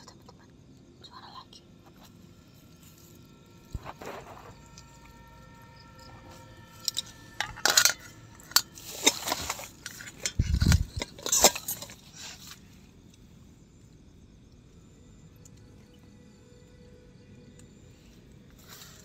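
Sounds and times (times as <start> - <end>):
small hard objects clinking: 6.6 - 12.6.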